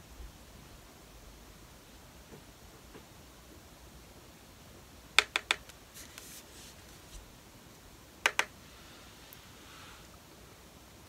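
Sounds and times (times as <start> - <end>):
brush tapping plastic palette: 5.2 - 6.4, 8.2 - 8.6.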